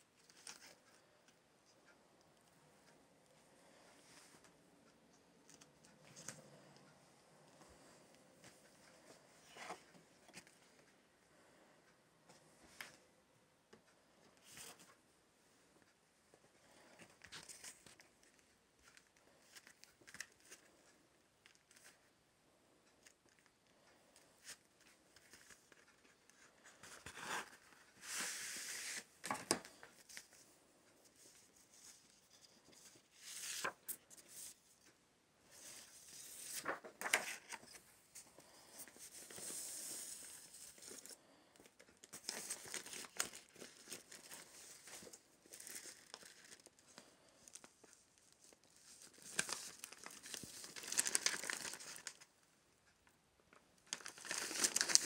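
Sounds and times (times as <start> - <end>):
paper and card rustling: 0.2 - 1.0, 24.4 - 34.9, 35.5 - 52.3, 53.9 - 55.0.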